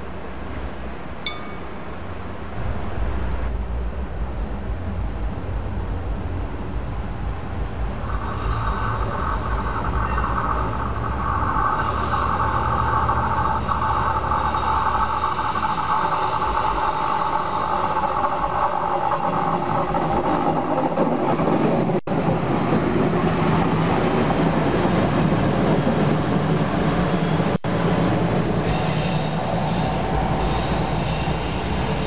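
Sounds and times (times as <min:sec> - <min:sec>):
wheel on rail noise: 0:00.0 - 0:32.0
diesel engine rumble: 0:02.1 - 0:23.2
wheels squealing: 0:08.0 - 0:21.6, 0:28.6 - 0:32.0.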